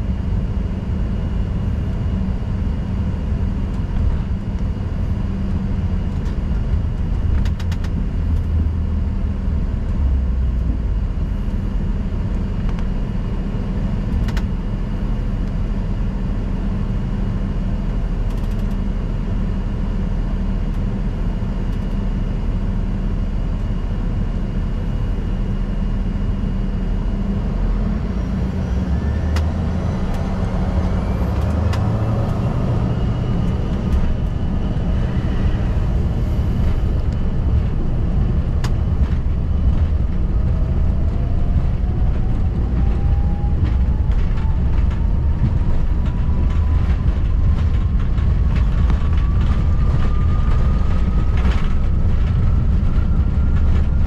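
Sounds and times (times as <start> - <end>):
aircraft cabin rumble: 0.0 - 54.0
faint rising whine: 24.9 - 54.0.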